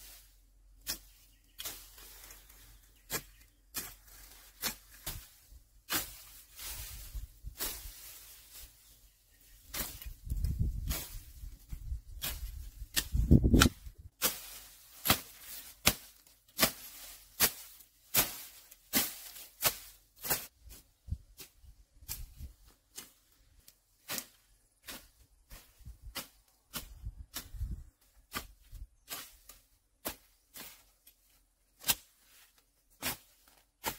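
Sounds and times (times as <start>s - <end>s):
blade chopping bamboo: 12.2s - 20.5s.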